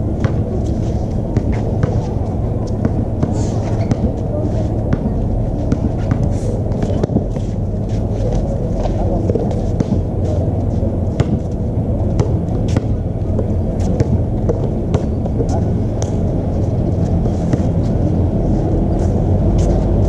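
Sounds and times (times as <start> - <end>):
low rumble: 0.0 - 20.0
basketball bouncing: 0.2 - 0.4, 11.1 - 16.2.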